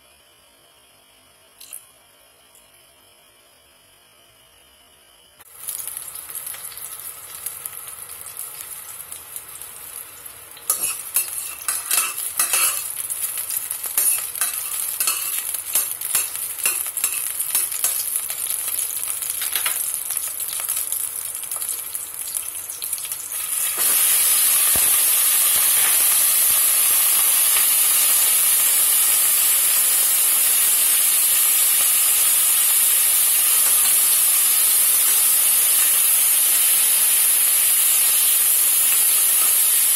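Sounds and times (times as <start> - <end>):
loud steady frying hiss: 3.4 - 39.9
food sizzling in hot oil: 5.4 - 39.9
metal spatula scraping a pot: 10.7 - 12.9.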